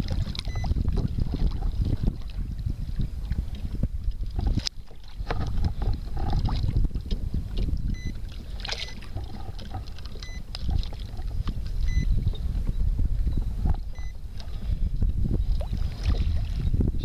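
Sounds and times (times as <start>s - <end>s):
knocks and splashes: 0.0s - 11.8s, 15.4s - 16.8s
water sloshing against hull: 0.0s - 17.0s
wind buffeting microphone: 0.0s - 17.0s.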